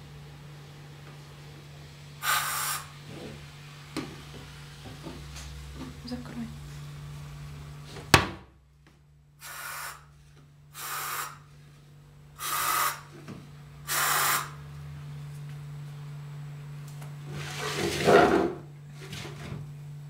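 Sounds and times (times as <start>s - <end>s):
aerosol can spraying: 2.2s - 2.9s, 9.4s - 10.0s, 10.8s - 11.4s, 13.9s - 14.6s.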